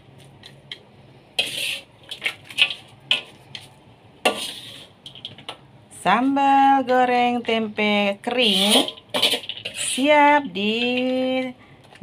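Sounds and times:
spoon scraping dry food: 0:01.4 - 0:02.8, 0:04.3 - 0:05.3, 0:08.4 - 0:10.2.

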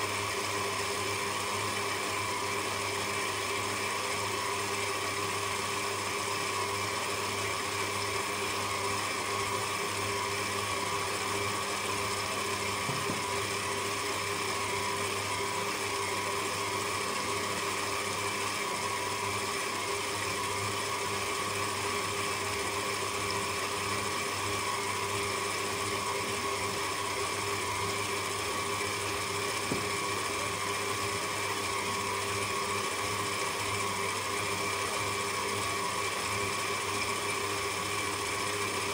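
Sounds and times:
stand mixer motor hum: 0:00.0 - 0:38.9
faint tap: 0:29.7 - 0:29.9.

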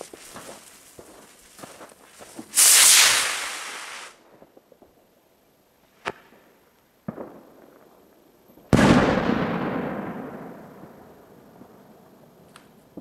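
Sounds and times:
sharp pops: 0:02.3 - 0:04.2
firework bang echoing: 0:02.4 - 0:04.2, 0:08.7 - 0:10.9.

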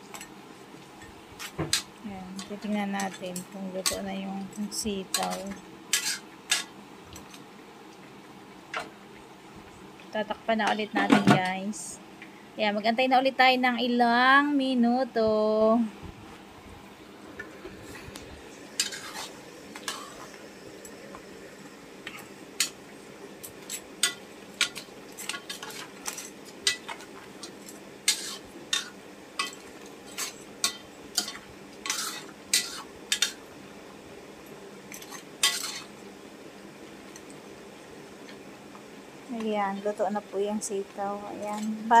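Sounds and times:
steady low hiss of simmering: 0:00.0 - 0:42.0
metal ladle scraping a pot: 0:05.2 - 0:06.7, 0:18.8 - 0:20.3, 0:28.1 - 0:30.3, 0:31.2 - 0:33.3.

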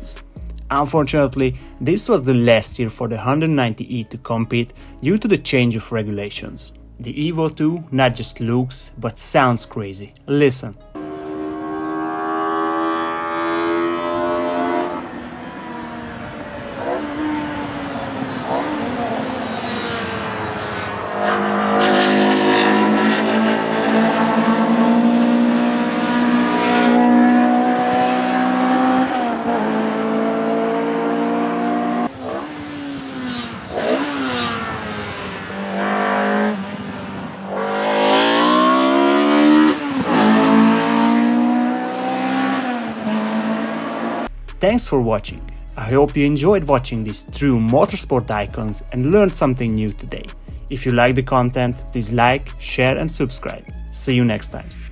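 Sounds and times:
race car engine revving: 0:11.0 - 0:44.3.

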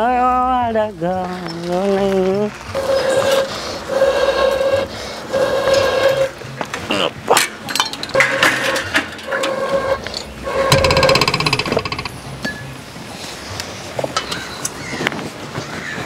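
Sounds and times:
sharp metallic clinks and knocks: 0:07.5 - 0:12.7.

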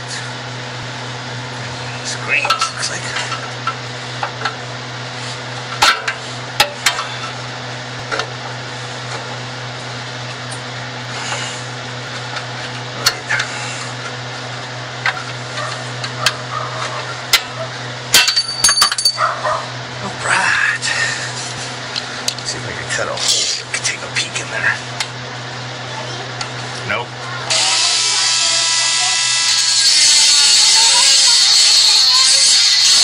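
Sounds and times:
steady low hum: 0:00.0 - 0:33.0
metal clinks: 0:18.2 - 0:19.3.

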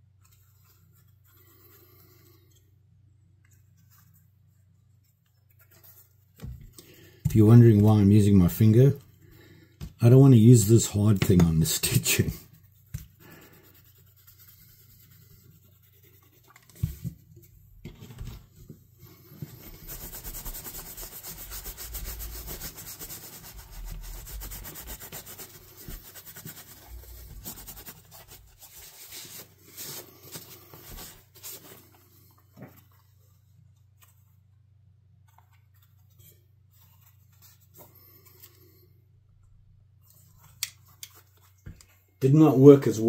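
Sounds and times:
cloth rubbing on leather: 0:19.1 - 0:31.9.

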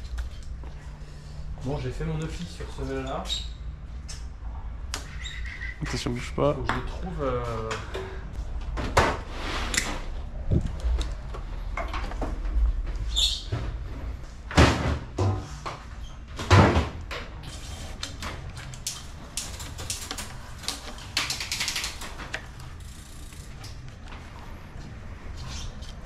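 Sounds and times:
small clicks and rattles: 0:18.0 - 0:24.0.

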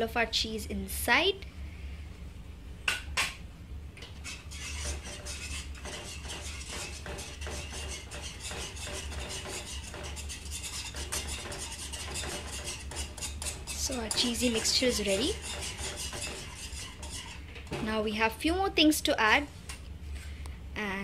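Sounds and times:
whisk scraping against pan: 0:04.0 - 0:17.5.

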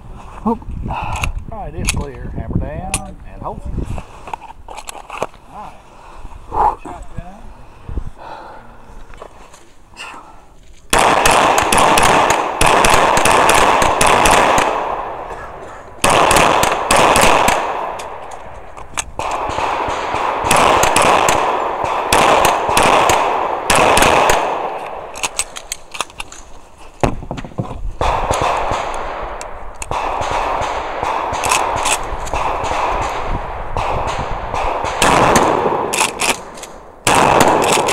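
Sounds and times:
pistol gunfire: 0:10.9 - 0:18.3, 0:19.2 - 0:25.6, 0:28.0 - 0:37.9.

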